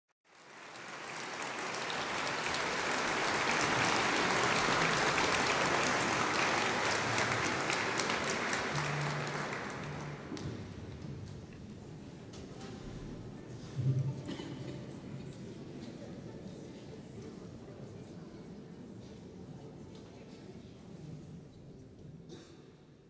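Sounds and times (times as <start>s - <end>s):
audience applauding: 0.3s - 10.7s.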